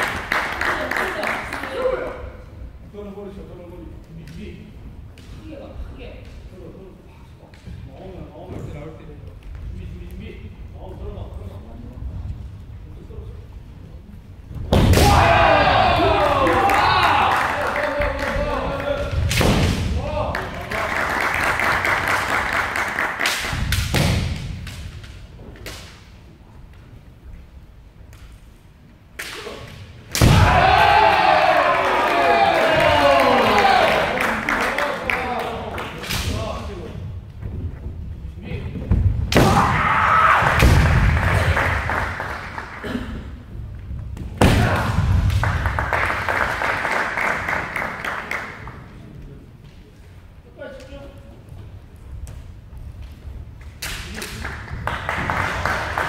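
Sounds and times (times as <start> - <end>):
loud shouting: 14.9 - 19.0, 30.2 - 34.8, 39.4 - 40.7
foot stamp and stick strike thud: 19.2 - 20.0.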